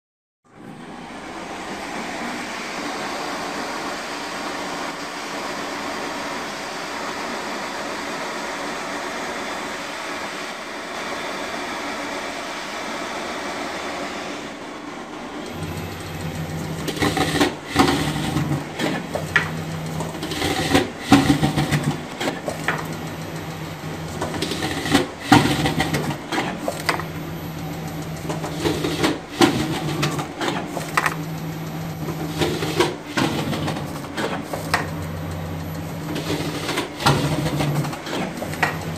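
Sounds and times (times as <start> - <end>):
low motor hum: 15.5 - 32.6
sharp clacks of sheets cut: 16.8 - 23.0, 24.2 - 27.1.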